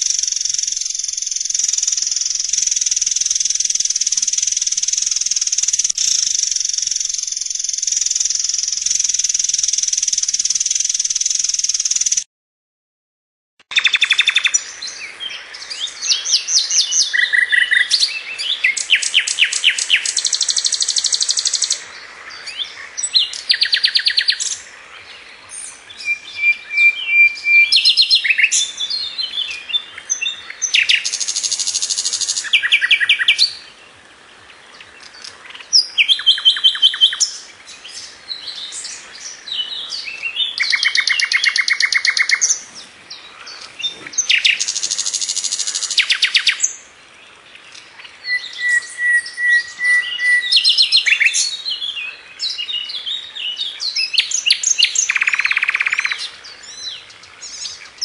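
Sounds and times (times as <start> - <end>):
songbird singing trills: 0.0 - 12.3, 13.7 - 58.0
steady hiss: 28.0 - 48.3.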